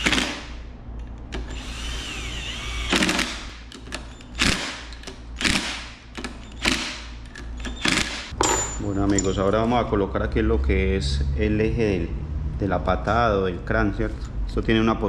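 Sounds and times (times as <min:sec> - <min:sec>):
electric power tool motor whine: 0:01.4 - 0:03.2.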